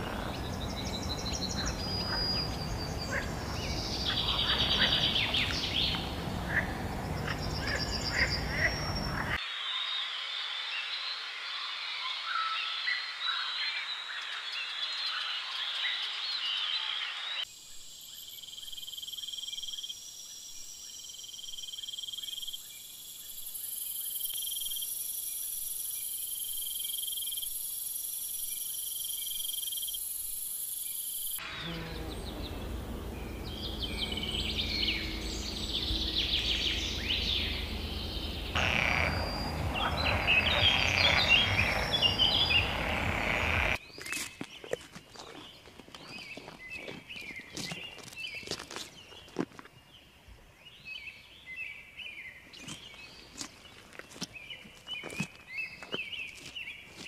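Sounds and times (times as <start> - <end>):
bird chirps and calls: 0.0 - 9.4, 31.6 - 45.5
frogs and insects calling: 0.0 - 44.2
high trills: 31.4 - 43.8
low rumble: 31.9 - 43.8.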